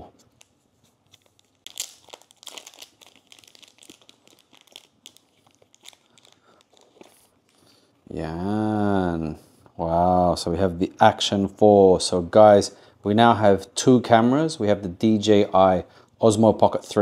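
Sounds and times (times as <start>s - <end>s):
plastic wrapping crinkling: 0.2s - 7.7s.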